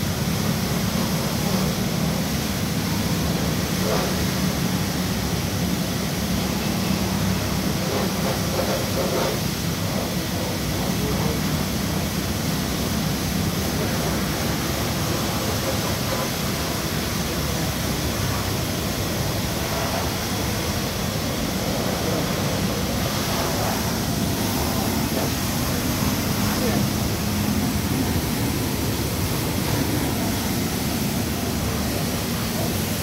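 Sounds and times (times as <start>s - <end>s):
steady rushing noise: 0.0s - 33.0s.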